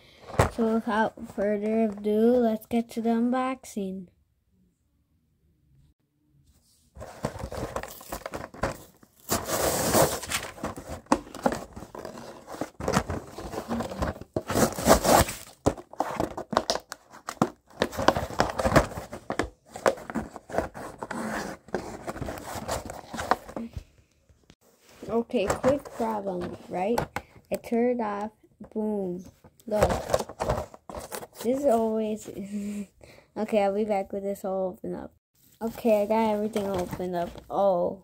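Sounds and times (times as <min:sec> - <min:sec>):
packaging ripping: 0:11.8 - 0:16.2.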